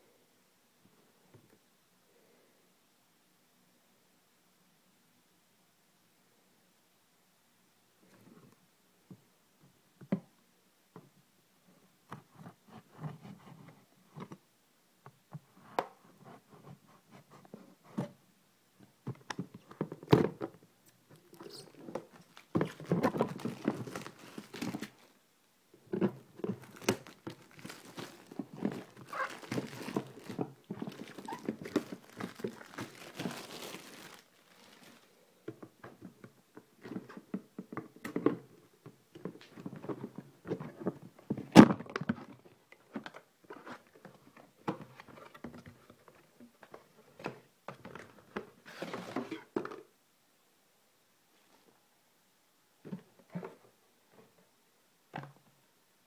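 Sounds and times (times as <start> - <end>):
cardboard and plastic rustling: 21.2 - 25.2, 25.9 - 35.2, 39.2 - 49.8.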